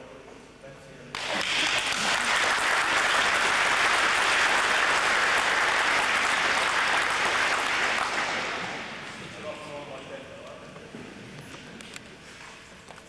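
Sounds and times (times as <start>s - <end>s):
crowd applauding: 1.1s - 9.4s.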